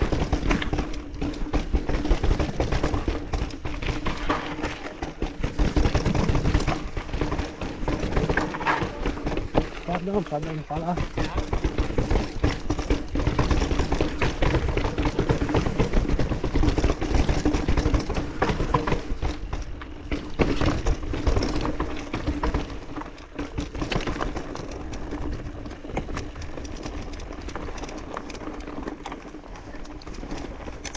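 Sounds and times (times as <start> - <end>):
bike rattling and clattering: 0.0 - 30.9
tyres crunching over stones: 3.8 - 19.8.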